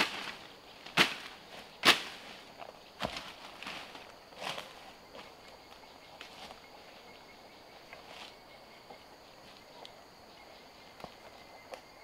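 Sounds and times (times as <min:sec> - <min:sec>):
footsteps in vegetation: 0:00.0 - 0:07.0
high-pitched insect chorus: 0:00.0 - 0:12.0.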